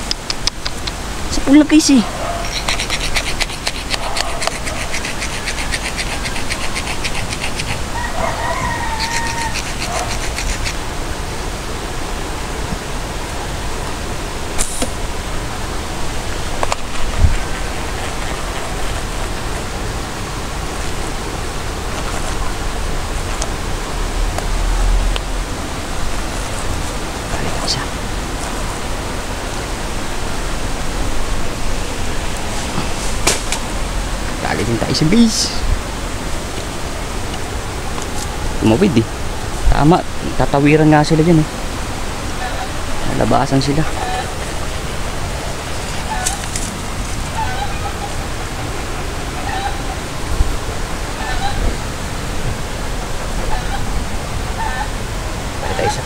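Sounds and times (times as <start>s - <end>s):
sharp clicks: 0.0s - 1.0s
river water rushing: 0.0s - 5.2s, 5.8s - 56.0s
steady outdoor hiss: 0.0s - 56.0s.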